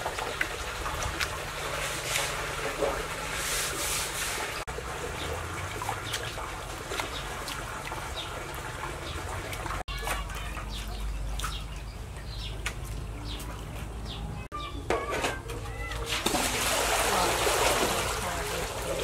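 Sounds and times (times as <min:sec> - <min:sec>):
water dripping and trickling: 0:00.0 - 0:14.5, 0:15.4 - 0:19.0
small birds chirping: 0:05.1 - 0:14.9.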